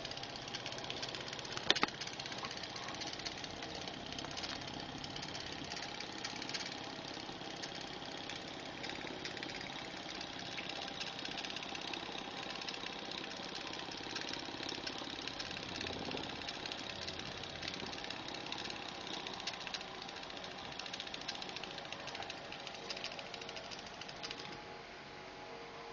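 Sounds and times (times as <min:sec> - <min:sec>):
steam engine running: 0:00.0 - 0:24.6.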